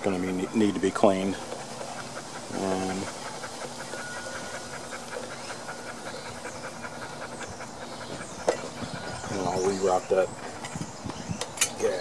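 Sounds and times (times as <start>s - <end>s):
close steady breathing: 1.3s - 9.3s.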